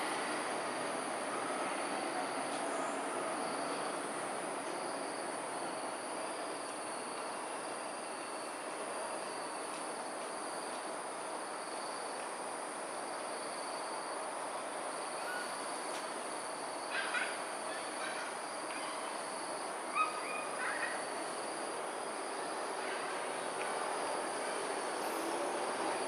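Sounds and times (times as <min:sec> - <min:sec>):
insects trilling: 0:10.4 - 0:26.0.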